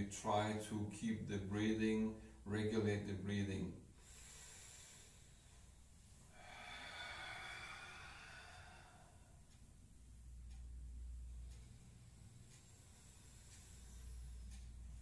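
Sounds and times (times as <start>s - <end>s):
person breathing slowly: 4.0s - 10.2s, 11.3s - 15.0s.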